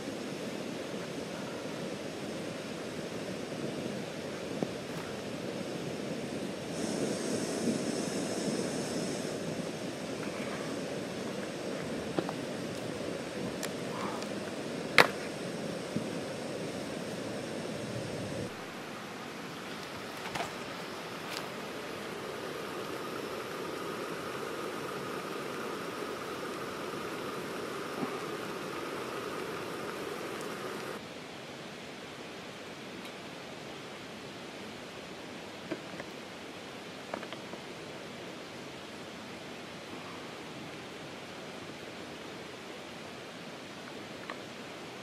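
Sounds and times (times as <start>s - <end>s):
gas stove hissing: 0.0s - 31.0s
creek rushing: 0.0s - 45.0s
water bubbling: 21.6s - 31.0s.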